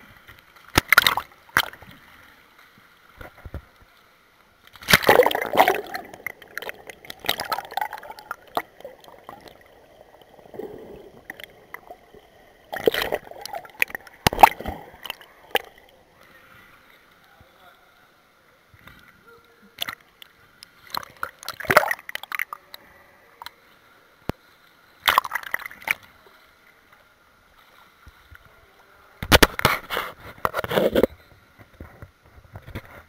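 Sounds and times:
water gurgling: 0:00.0 - 0:18.0, 0:19.7 - 0:23.6, 0:25.0 - 0:26.2
pool water splashing: 0:00.0 - 0:18.7, 0:19.4 - 0:24.2, 0:24.8 - 0:30.2.

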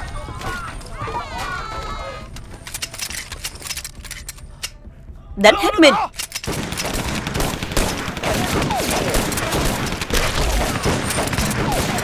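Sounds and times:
dense rifle and pistol gunfire: 0:06.4 - 0:12.0.

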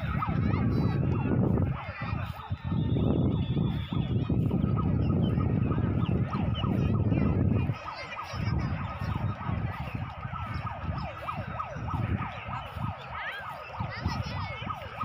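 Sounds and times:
siren yelping: 0:00.0 - 0:15.0.

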